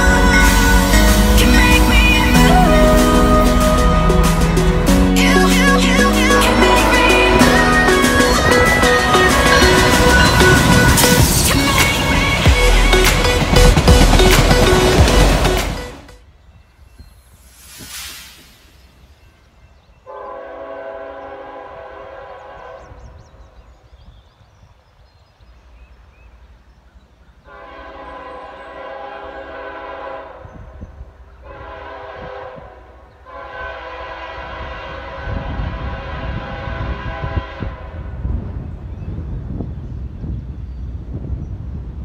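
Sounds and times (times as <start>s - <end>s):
locomotive air horn blasts: 0.0s - 13.5s, 20.1s - 23.2s, 27.5s - 30.7s, 31.4s - 38.2s
train rumble: 0.0s - 16.3s, 25.6s - 42.0s.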